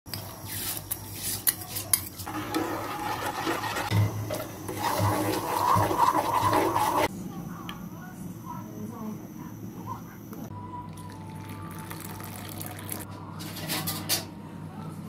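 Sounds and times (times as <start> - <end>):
spoon stirring and scraping in pot: 0.1 - 7.1
liquid pouring: 10.9 - 13.0.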